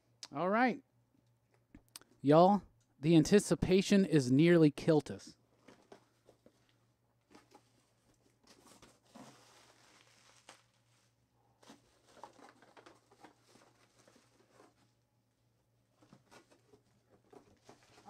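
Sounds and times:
plastic packing crinkling: 5.6s - 14.9s.

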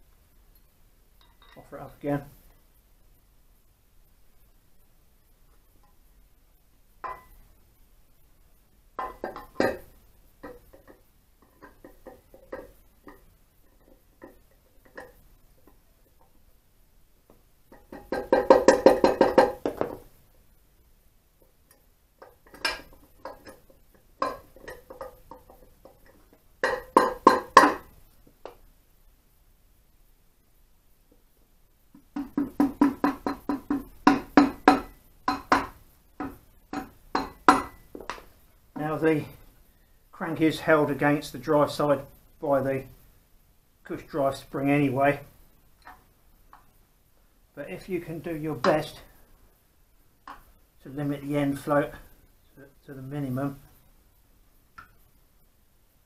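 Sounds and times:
metal knocks and clinks: 0.5s - 1.7s, 7.0s - 7.4s, 9.0s - 15.8s, 22.2s - 27.9s, 32.1s - 38.3s
mallet knocking on engine casing: 32.2s - 37.8s.

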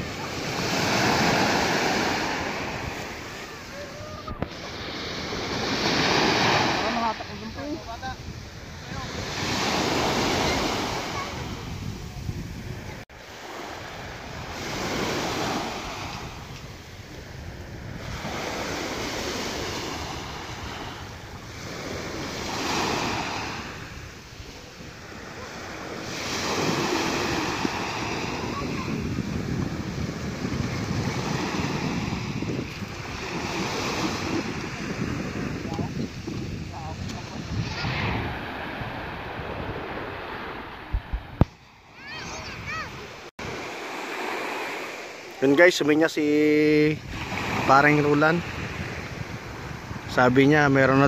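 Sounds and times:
wind buffeting microphone: 0.0s - 13.1s, 13.8s - 43.6s, 46.9s - 50.8s
sea waves washing onto shore: 0.0s - 51.0s.

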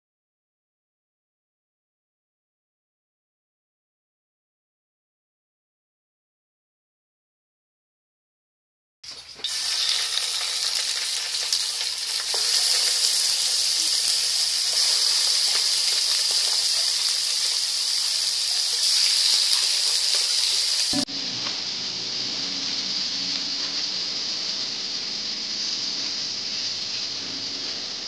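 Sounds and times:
chicken sizzling in hot oil: 9.1s - 28.0s.

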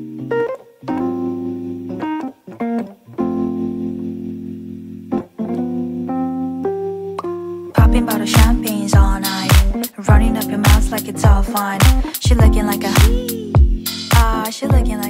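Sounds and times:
music with held chords: 0.0s - 15.0s.

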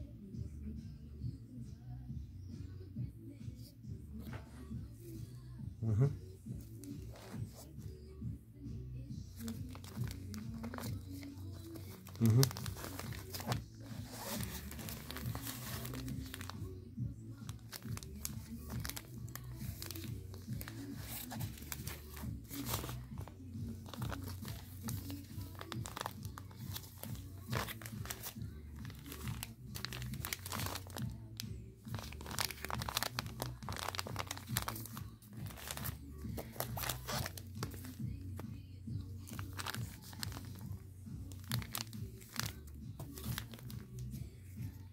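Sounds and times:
background music: 0.0s - 44.9s
plastic bags crinkling: 9.4s - 16.6s, 17.5s - 38.1s, 39.2s - 44.1s.

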